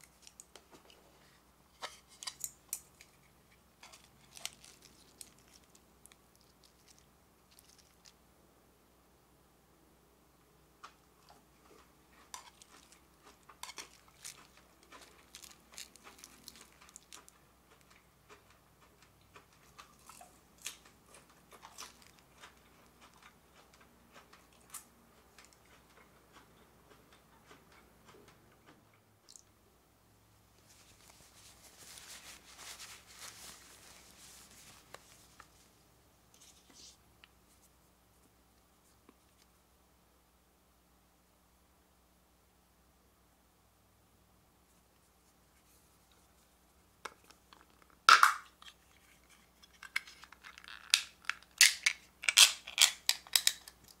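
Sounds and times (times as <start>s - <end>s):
crunchy lettuce chewing: 2.2s - 8.2s, 11.6s - 29.4s
packet rustling: 3.8s - 5.8s, 30.6s - 35.6s.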